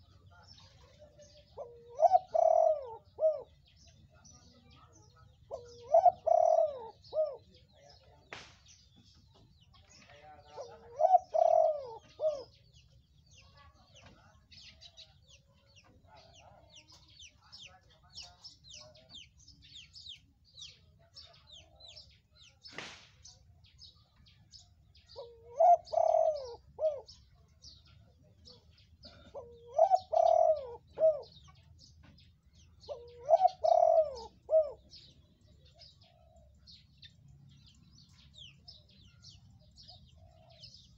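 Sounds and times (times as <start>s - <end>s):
dove cooing: 0.0s - 3.8s, 5.4s - 7.7s, 10.2s - 12.8s, 25.0s - 27.5s, 28.4s - 31.7s, 32.7s - 36.7s, 39.8s - 40.9s.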